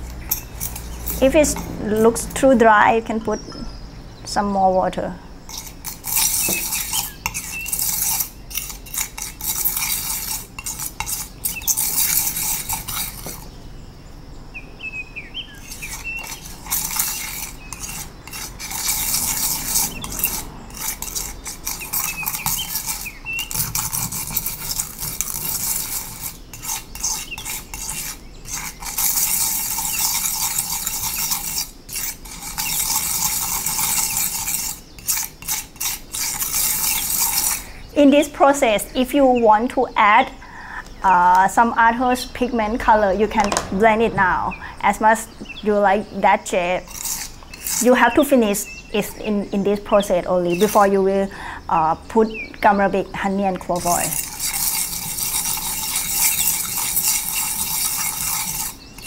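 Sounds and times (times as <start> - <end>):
palette knife scraping on tile: 5.5 - 13.4, 15.5 - 37.7, 46.5 - 49.1, 50.5 - 51.0, 53.7 - 59.0.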